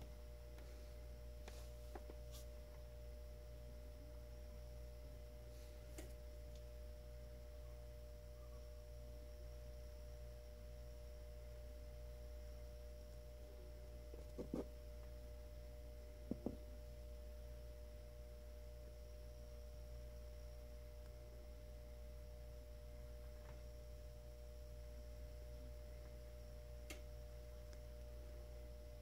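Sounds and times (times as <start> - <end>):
faint pure tone: 6.5 - 14.5.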